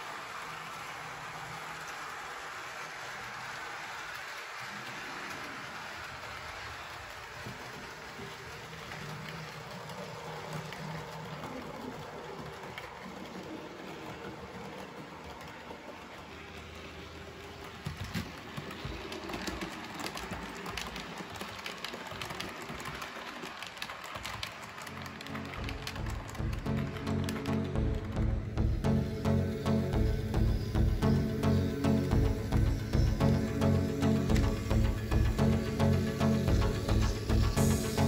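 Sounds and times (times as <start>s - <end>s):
wheels clicking over rail joints: 0.0s - 28.8s
model train rolling hum: 0.0s - 38.0s.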